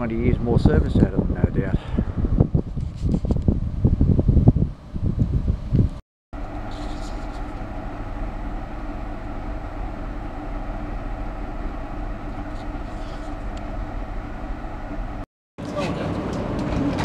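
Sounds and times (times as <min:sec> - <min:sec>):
train carriage hum and rumble: 0:03.0 - 0:17.0
choppy noise burst: 0:06.4 - 0:15.3.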